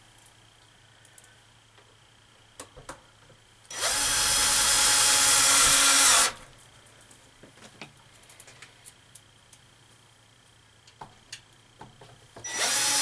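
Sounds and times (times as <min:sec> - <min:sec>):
cordless drill driving screw: 0:03.7 - 0:06.4, 0:12.5 - 0:13.0.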